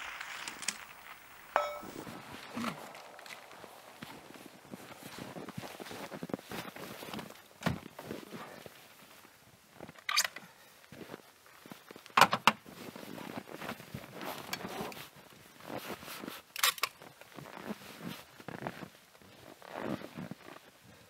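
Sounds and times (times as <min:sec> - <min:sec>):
footsteps crunching in snow: 0:00.0 - 0:10.0.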